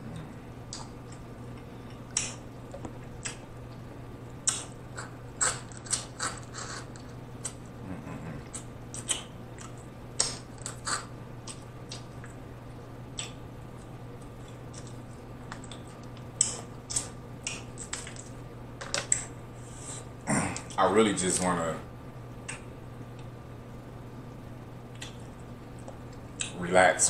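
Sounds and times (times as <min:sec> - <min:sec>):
wet mouth eating sounds: 0:00.0 - 0:02.5, 0:04.4 - 0:12.4, 0:15.6 - 0:18.0, 0:24.9 - 0:26.6
low steady hum: 0:00.0 - 0:27.0.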